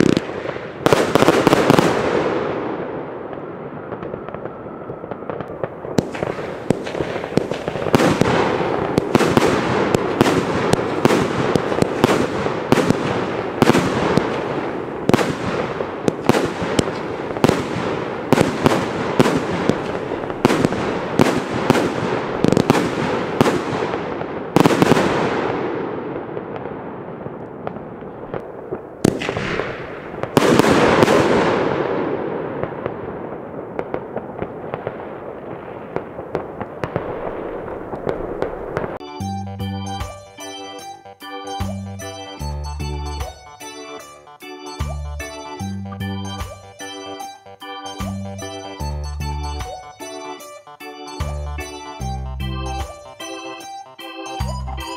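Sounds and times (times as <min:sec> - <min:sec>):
firework bangs with echo: 0:00.0 - 0:39.0.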